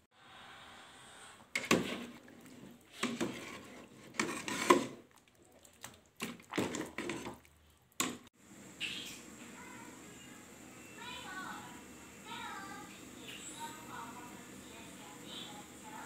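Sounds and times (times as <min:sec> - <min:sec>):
utensil knocking and scraping pot: 0:01.5 - 0:05.1, 0:06.2 - 0:07.4
faint water noise: 0:01.7 - 0:09.2.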